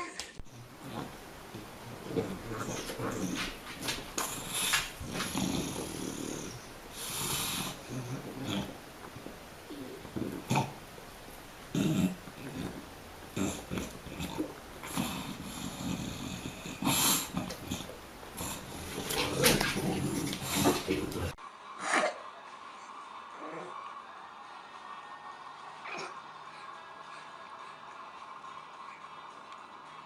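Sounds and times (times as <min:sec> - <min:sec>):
dog breathing and grunting: 0:00.5 - 0:10.9, 0:11.7 - 0:21.4.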